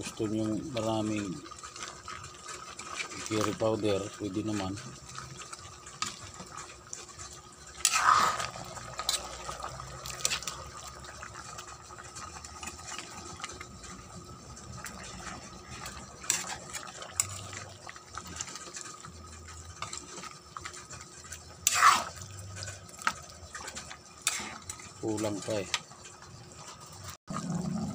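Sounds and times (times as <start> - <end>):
utensil scraping metal pan: 5.9 - 10.6, 15.1 - 17.6, 21.4 - 25.8.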